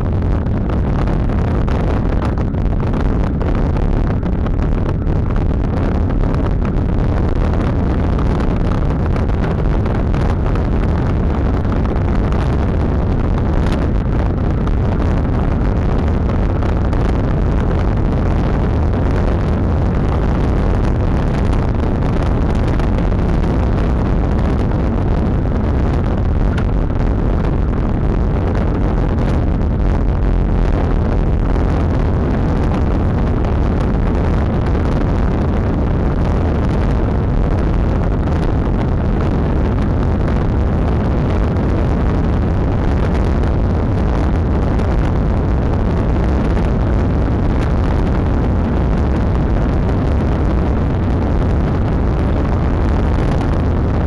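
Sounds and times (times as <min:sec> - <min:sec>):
wind rushing over microphone: 0:00.0 - 0:54.0.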